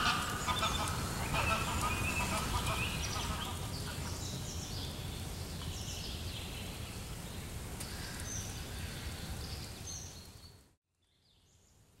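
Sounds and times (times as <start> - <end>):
high bird calls: 0.0 - 5.0.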